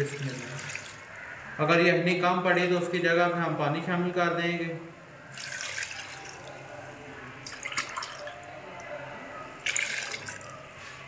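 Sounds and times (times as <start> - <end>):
stock pouring and splashing into pan: 5.3 - 6.5.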